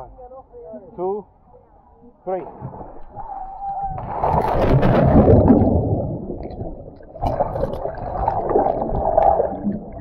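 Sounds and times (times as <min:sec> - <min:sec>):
underwater bubbling and gurgling: 0:02.6 - 0:10.0
splash into water: 0:04.0 - 0:06.1
churning water: 0:04.0 - 0:10.0.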